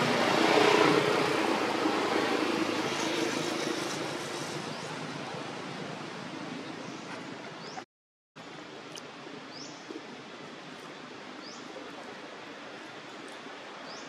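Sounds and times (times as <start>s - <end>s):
road noise: 0.0s - 7.8s.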